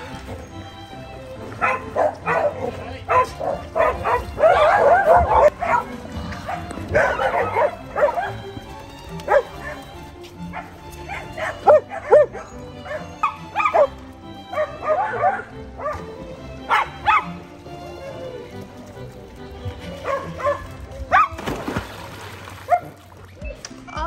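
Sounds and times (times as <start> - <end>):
background music: 0.0 - 24.0
dogs crying high-pitched: 1.6 - 8.6, 9.3 - 16.0.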